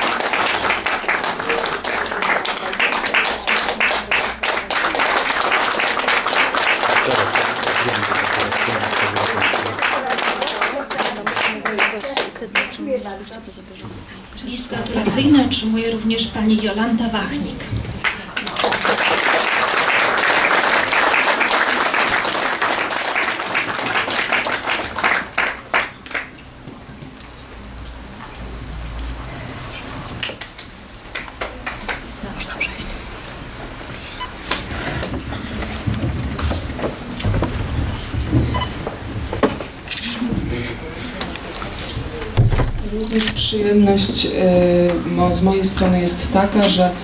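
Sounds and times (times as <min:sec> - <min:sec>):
audience applauding: 0:00.0 - 0:12.8, 0:18.0 - 0:26.6, 0:30.2 - 0:32.6.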